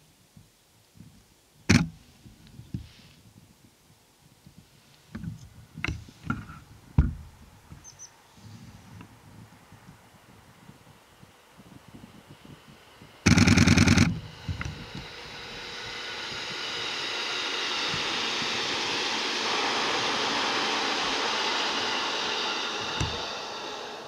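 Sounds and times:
train passing: 0:09.7 - 0:24.0.

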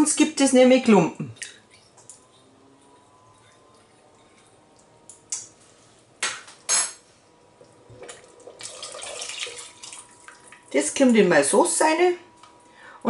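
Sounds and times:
liquid pouring and splashing: 0:07.6 - 0:10.7.

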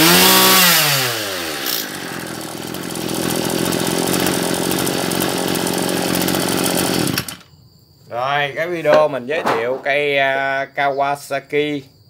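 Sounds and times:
brush cutter engine idling: 0:00.0 - 0:07.4.

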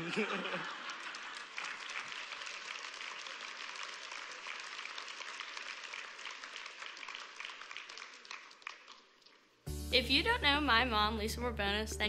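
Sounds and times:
crowd clapping: 0:00.0 - 0:09.6.

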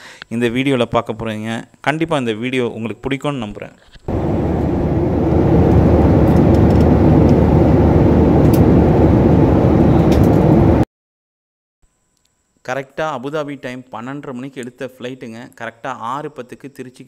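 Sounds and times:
airliner cabin engine noise: 0:04.1 - 0:10.9.

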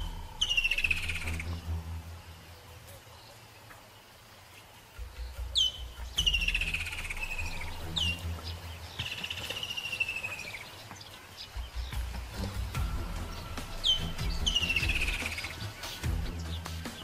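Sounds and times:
bird whistling call: 0:00.0 - 0:01.8, 0:05.4 - 0:12.1, 0:12.7 - 0:17.0
low rumble: 0:00.0 - 0:02.8, 0:05.0 - 0:09.4, 0:11.6 - 0:15.5.

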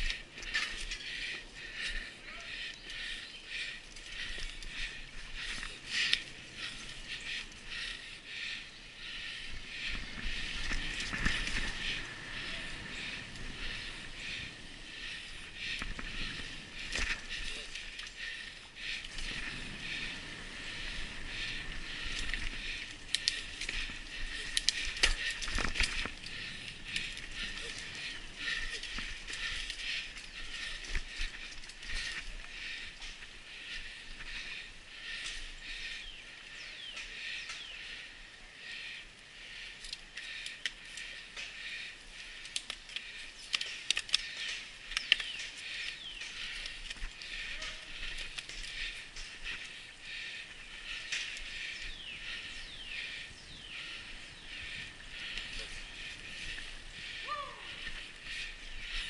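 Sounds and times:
bicycle tyres hissing on trail: 0:00.1 - 0:59.0
bike rattling over bumps: 0:09.2 - 0:35.4.

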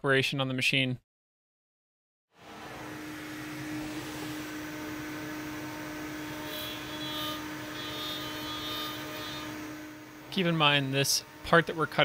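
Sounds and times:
high-pitched cutting whine: 0:02.4 - 0:12.0
router spindle whine: 0:02.4 - 0:12.0.

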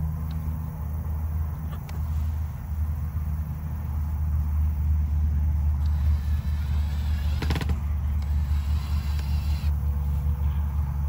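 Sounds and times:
steady low rumble: 0:00.0 - 0:11.0
cordless drill driving a screw: 0:05.8 - 0:09.8.

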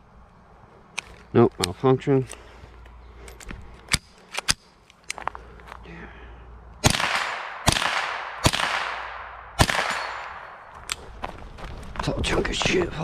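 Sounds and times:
rifle shots echoing: 0:06.8 - 0:10.7.

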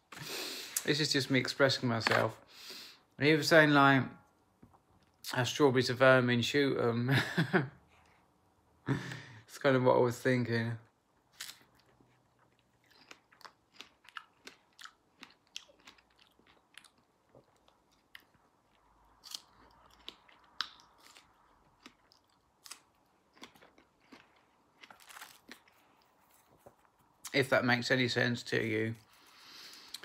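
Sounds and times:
person chewing strawberries: 0:11.3 - 0:27.3, 0:29.0 - 0:30.0.

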